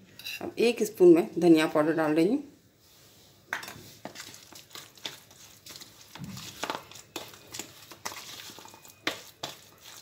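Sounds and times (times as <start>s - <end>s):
spoon stirring in plastic bowl: 3.5s - 10.0s.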